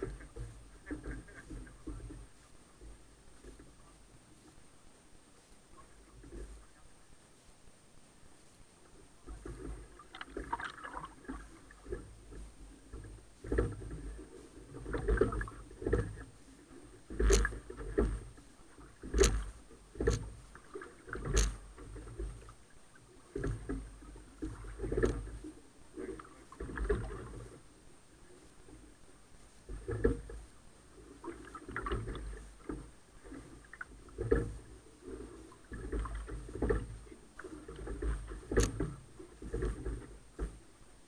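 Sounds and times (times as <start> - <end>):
low rumble of water and wind: 0.0 - 41.0
oars knocking in oarlocks: 17.1 - 18.4, 19.0 - 22.5, 37.6 - 40.6.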